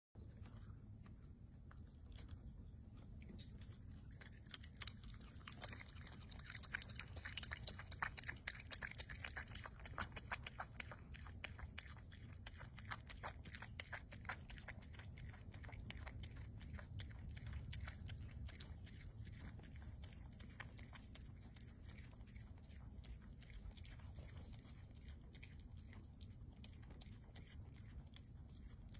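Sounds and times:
animal chewing food: 0.2 - 28.9.

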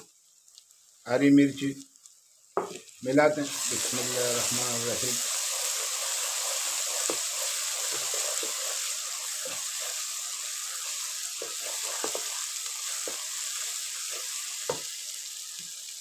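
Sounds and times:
sauce sizzling in a pan: 0.0 - 16.0
wooden spatula scraping a pan: 5.4 - 14.8.

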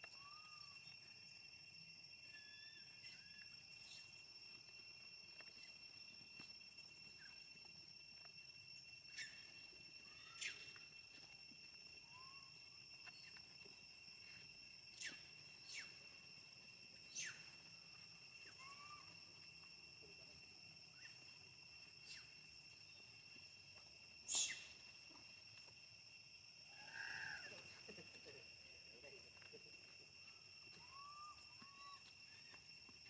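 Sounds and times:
high insect drone: 0.0 - 33.0
soft chirps: 2.1 - 23.2, 24.2 - 25.3.

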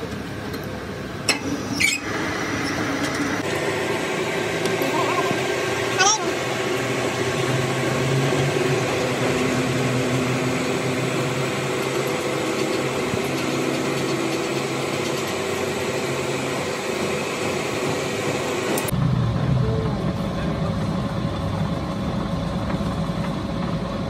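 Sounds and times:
metal lathe machining hum: 0.0 - 19.0.

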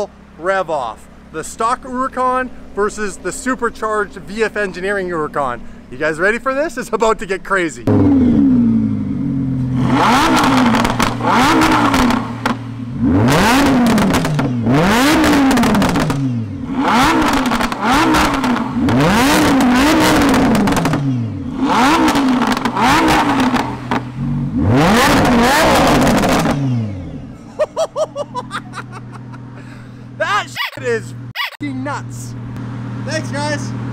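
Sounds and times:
car engine revving: 7.8 - 33.9.

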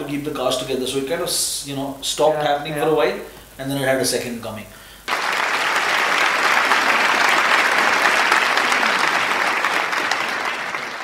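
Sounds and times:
audience applause: 5.1 - 11.0.

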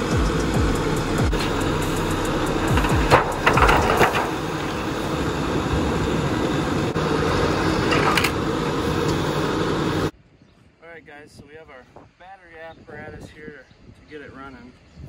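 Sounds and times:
car body scraping and rumbling: 0.0 - 10.1.

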